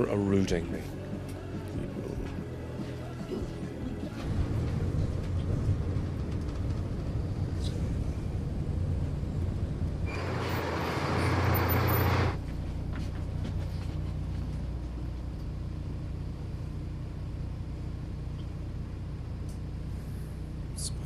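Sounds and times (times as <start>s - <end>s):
bus engine humming: 0.0s - 21.0s.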